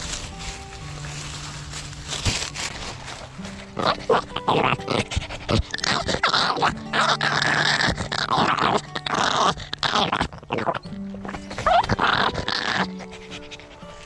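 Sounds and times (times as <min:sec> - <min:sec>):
fur rubbing on microphone: 0:00.0 - 0:06.2
dog whining breathily: 0:03.6 - 0:14.0
dog panting: 0:03.7 - 0:14.0.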